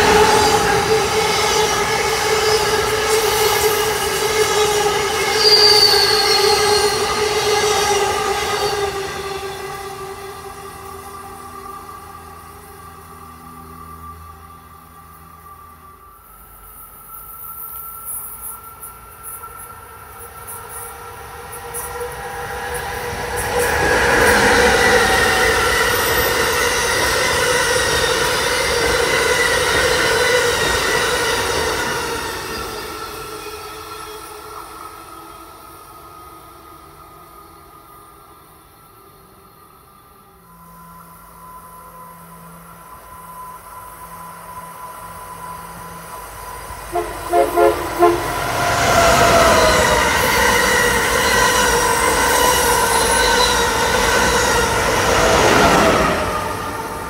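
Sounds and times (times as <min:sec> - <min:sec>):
passenger train rolling past: 0:00.0 - 0:57.0
ringing whine from wheels: 0:00.0 - 0:57.0
brief high wheel squeal: 0:00.1 - 0:09.7, 0:38.6 - 0:56.6.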